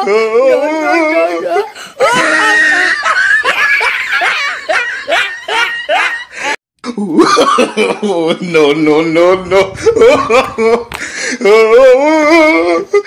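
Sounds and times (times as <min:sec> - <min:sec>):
person speaking: 0:08.4 - 0:11.6
child laughing: 0:09.4 - 0:11.0.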